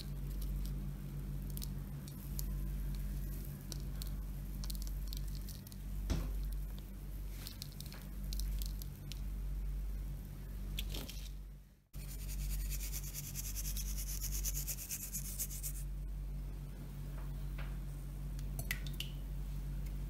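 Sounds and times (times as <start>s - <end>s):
coconut sprinkled pattering: 0.0s - 9.3s
steady low hum: 0.0s - 20.0s.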